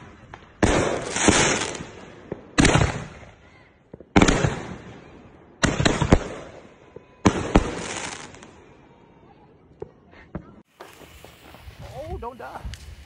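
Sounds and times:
fireworks bursting: 0.0s - 13.0s
sharp firework pops: 9.8s - 13.0s.

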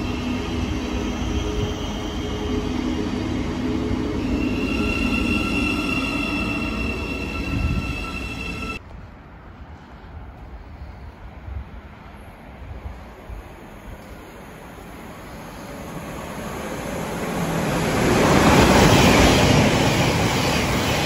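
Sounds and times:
high steady train whine: 0.0s - 21.0s
train wheels rumbling on rail: 15.2s - 21.0s.

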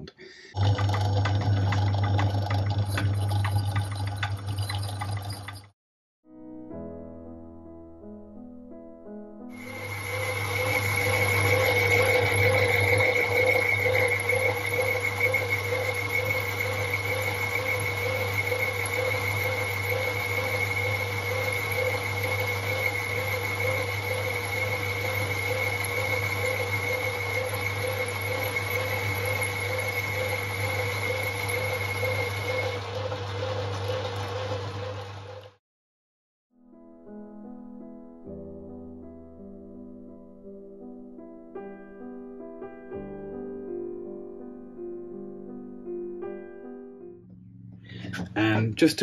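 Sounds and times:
lathe motor hum: 0.0s - 5.6s, 9.6s - 35.6s
high-pitched tone: 9.6s - 32.8s.

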